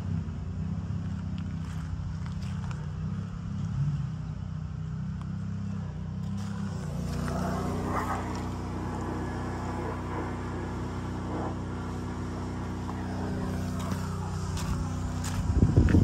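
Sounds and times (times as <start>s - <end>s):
pickup engine idling: 5.9s - 16.0s.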